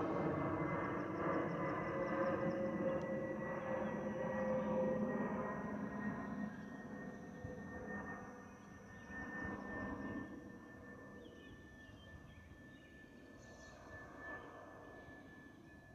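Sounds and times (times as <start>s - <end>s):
jet rumble with high whine: 0.0s - 15.9s.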